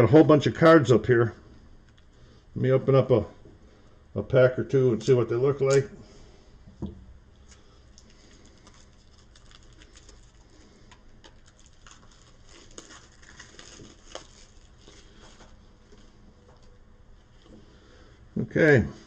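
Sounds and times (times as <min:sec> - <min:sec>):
card pack rustling and crinkling: 0:07.9 - 0:16.1.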